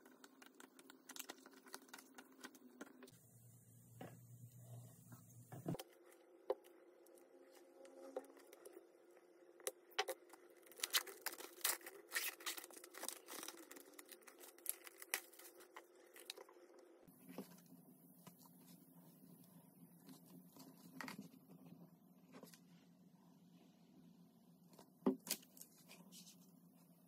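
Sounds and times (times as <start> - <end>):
plastic shrink wrap crinkling: 0.0 - 3.1, 10.0 - 16.8.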